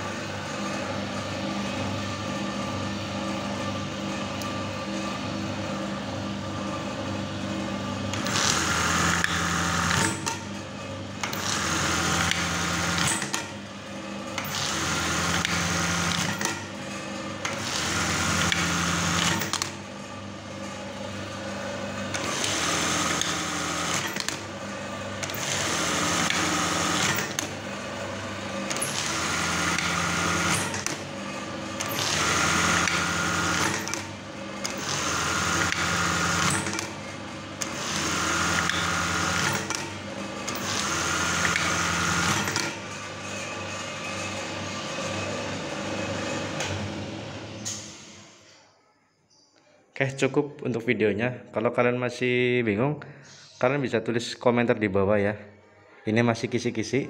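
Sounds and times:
motor hum: 0:00.0 - 0:48.3
sewing machine running: 0:07.5 - 0:48.3.

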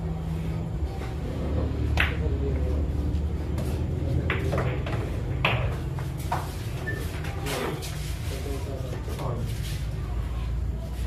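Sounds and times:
low room murmur: 0:00.0 - 0:11.0
pool balls clicking: 0:04.2 - 0:06.6.

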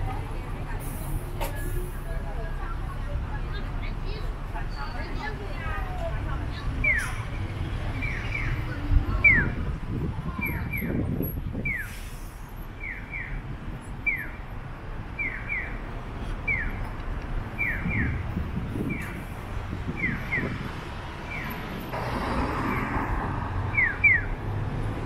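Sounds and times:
low street noise: 0:00.0 - 0:25.0
electronic bird-chirp crossing signal: 0:08.0 - 0:09.6, 0:15.2 - 0:15.8, 0:17.6 - 0:18.2, 0:19.9 - 0:20.6, 0:23.7 - 0:24.4.

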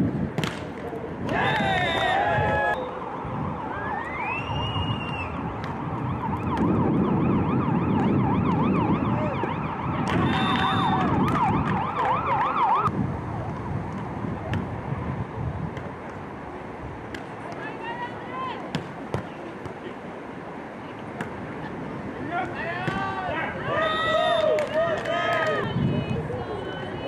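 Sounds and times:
siren warbling: 0:02.7 - 0:12.9.

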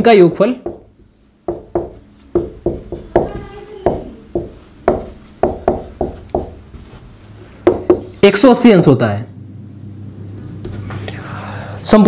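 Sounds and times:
marker writing on a whiteboard: 0:00.6 - 0:08.3.

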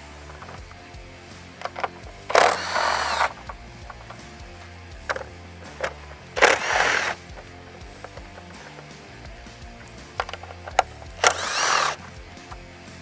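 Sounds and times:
cordless drill whining: 0:01.6 - 0:08.9, 0:10.2 - 0:12.7.

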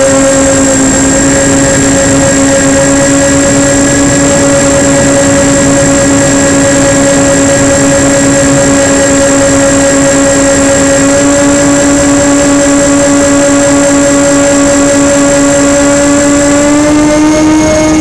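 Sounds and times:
electric motors and propellers droning: 0:00.0 - 0:18.0
rushing air noise: 0:00.1 - 0:12.4.

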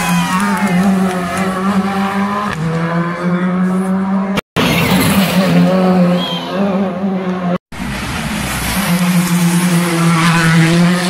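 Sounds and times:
rally car engine at high revs: 0:00.4 - 0:11.0.

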